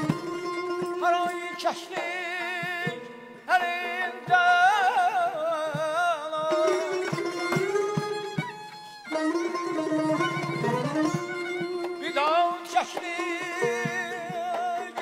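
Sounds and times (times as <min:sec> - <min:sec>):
held string note: 0:06.6 - 0:12.5.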